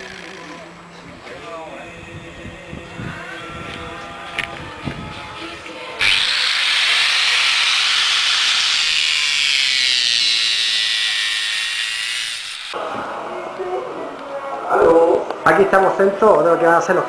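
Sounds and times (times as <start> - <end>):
angle grinder cutting metal: 6.0 - 12.8.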